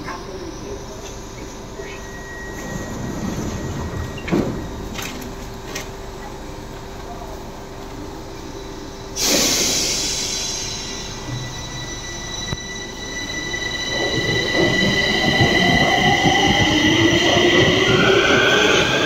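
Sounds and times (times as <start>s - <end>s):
train humming: 0.0s - 19.0s
train doors banging shut: 3.4s - 6.0s
train pulling out rush: 8.7s - 19.0s.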